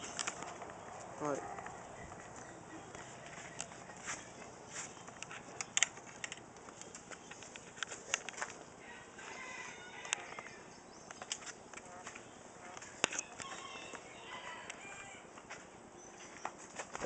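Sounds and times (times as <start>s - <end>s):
sharp clicks: 5.0s - 8.4s.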